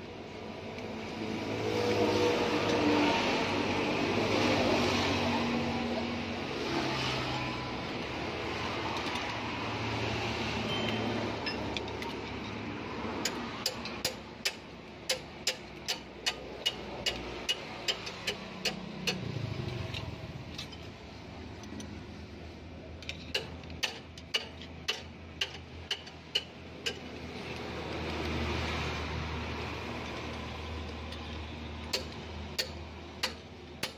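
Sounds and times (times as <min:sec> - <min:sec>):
spanner clicking on metal: 0:10.8 - 0:22.0, 0:23.0 - 0:28.2, 0:30.0 - 0:33.9.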